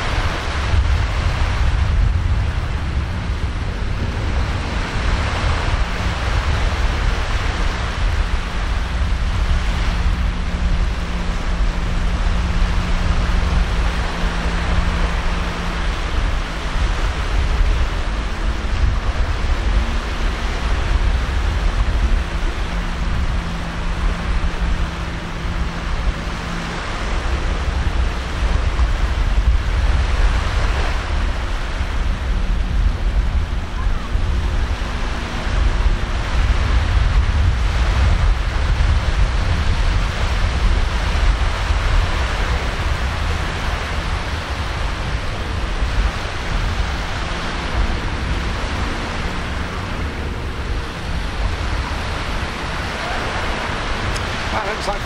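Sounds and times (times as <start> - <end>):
distant jet boat engine drone: 0.0 - 55.0
waves washing on shore: 0.0 - 55.0
wind rumbling on microphone: 0.0 - 55.0.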